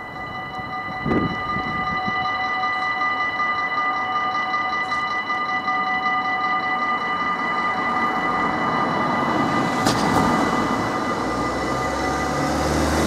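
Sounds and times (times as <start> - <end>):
traffic rushing: 5.5 - 13.0
wheels clunking on rails: 5.9 - 13.0
car engine passing: 9.4 - 13.0.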